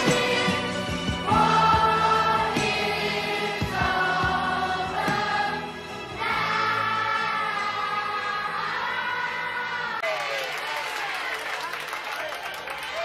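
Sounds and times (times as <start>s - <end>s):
choir singing long chords: 0.0s - 10.0s.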